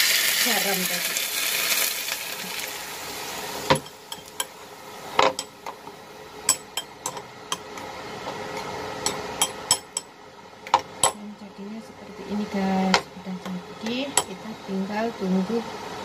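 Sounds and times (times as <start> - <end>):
hot oil sizzling: 0.0 - 16.0
metal spoon clinking bowl: 9.1 - 10.1.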